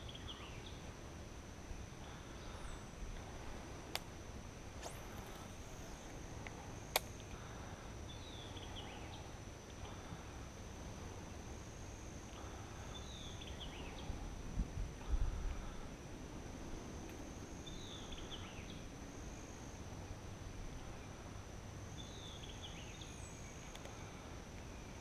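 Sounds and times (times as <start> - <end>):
high-pitched insect drone: 1.6 - 25.0
sharp click: 6.4 - 7.2.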